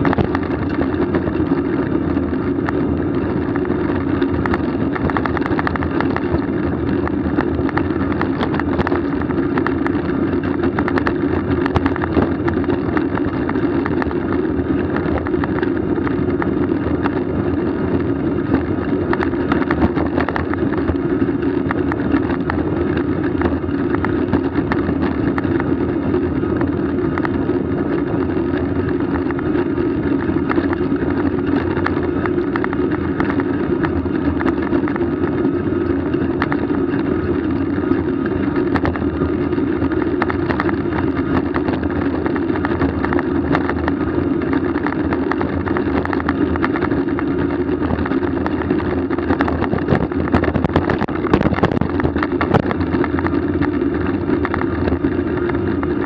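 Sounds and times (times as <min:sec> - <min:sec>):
moving vehicle hum: 0:00.0 - 0:56.0
small clicks and rattles: 0:00.0 - 0:56.0.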